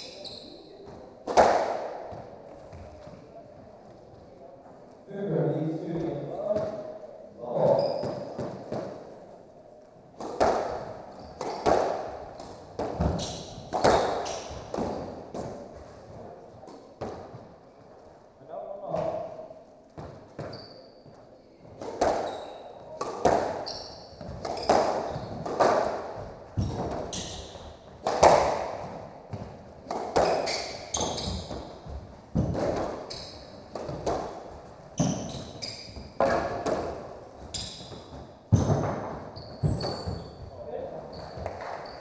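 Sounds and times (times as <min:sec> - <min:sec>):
squash ball hits echoing: 0:00.8 - 0:02.9, 0:08.0 - 0:09.1, 0:10.2 - 0:17.5, 0:21.7 - 0:40.6
shoes squeaking on hardwood: 0:11.1 - 0:12.2, 0:20.0 - 0:28.0, 0:30.2 - 0:42.0.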